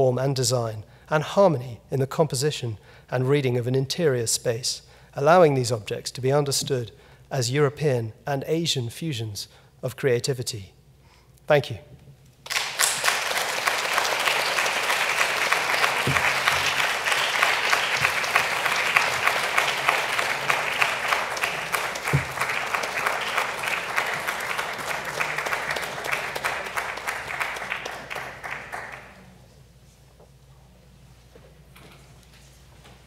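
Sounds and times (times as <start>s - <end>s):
audience applauding: 12.4s - 29.3s.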